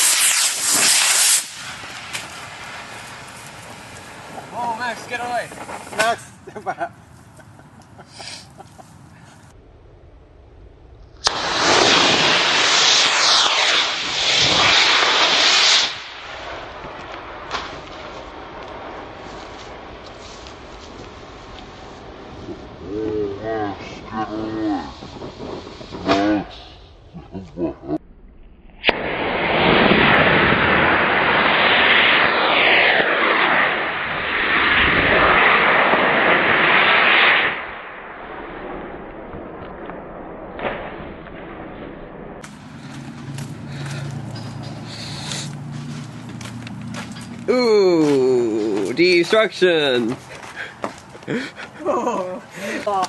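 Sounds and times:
sharp pop: 0.0s - 2.4s, 11.2s - 12.1s, 28.8s - 30.4s
rocket motor igniting crack: 0.0s - 6.2s, 11.0s - 22.5s, 24.8s - 26.7s, 28.8s - 47.3s
rocket motor rushing hiss: 0.0s - 6.2s, 11.2s - 16.6s, 28.9s - 37.7s.

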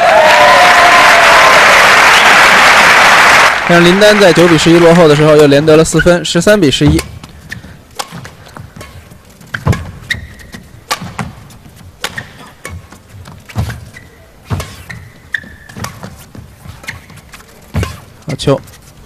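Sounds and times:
shoes squeaking on court floor: 5.8s - 19.0s
racket hitting shuttlecock: 6.8s - 18.4s.

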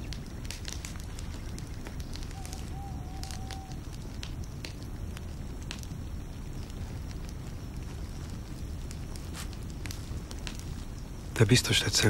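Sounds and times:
campfire burning: 0.0s - 12.0s
wood crackling and popping: 0.0s - 12.0s.

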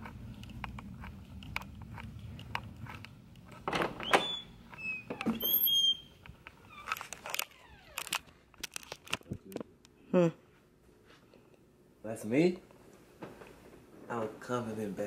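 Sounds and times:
short high squeaks: 4.0s - 8.0s.

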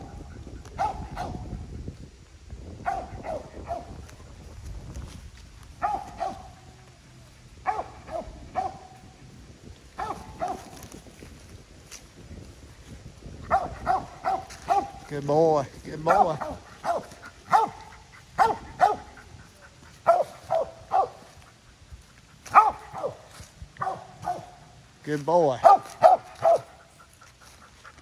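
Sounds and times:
dog barking: 0.8s - 1.5s, 2.8s - 4.0s, 5.8s - 6.6s, 7.6s - 9.0s, 10.0s - 10.8s, 13.5s - 15.0s, 16.1s - 19.2s, 20.0s - 21.3s, 22.5s - 24.6s, 25.6s - 26.8s.

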